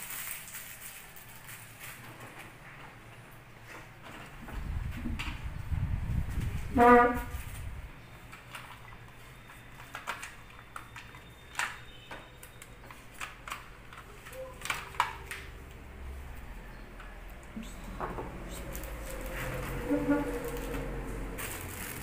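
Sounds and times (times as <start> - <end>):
plastic packaging rustling: 0.0 - 2.9, 7.4 - 15.7, 18.4 - 22.0.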